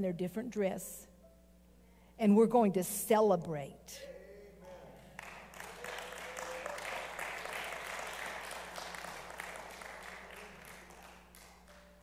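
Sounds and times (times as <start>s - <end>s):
congregation applauding: 5.0s - 12.0s.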